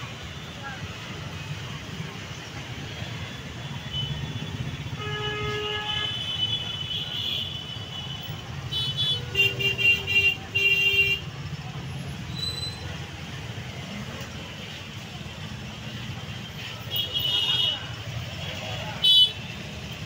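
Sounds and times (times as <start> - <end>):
vehicle horns honking: 3.8 - 11.3, 19.0 - 19.6.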